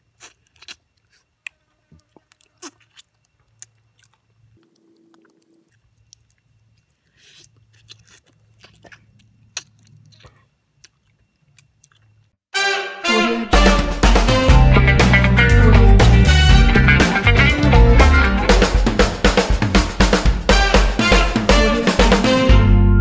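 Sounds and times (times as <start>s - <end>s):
person chewing and sucking: 0.0s - 12.3s.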